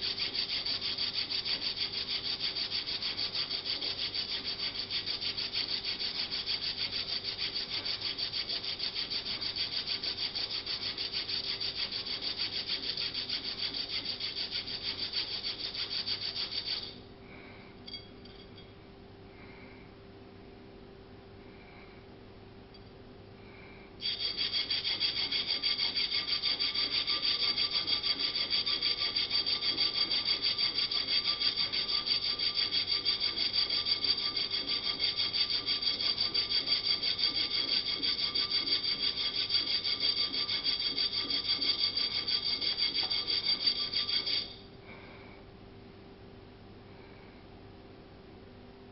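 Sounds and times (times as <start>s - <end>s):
metal part rasped against file: 0.0s - 17.0s, 17.8s - 18.7s, 24.0s - 44.6s.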